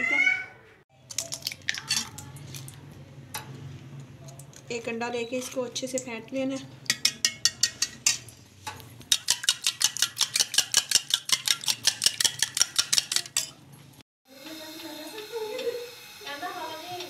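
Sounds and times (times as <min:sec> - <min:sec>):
spoon clinking in steel bowl: 0:09.1 - 0:13.6.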